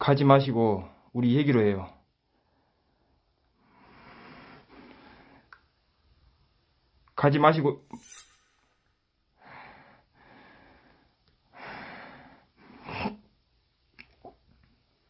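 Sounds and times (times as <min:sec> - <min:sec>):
person breathing: 0:09.4 - 0:12.6.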